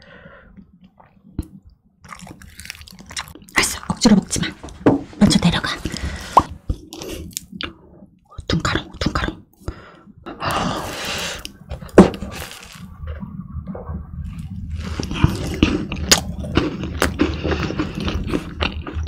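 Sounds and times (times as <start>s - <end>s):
crunch of macaron shell: 2.0s - 3.6s.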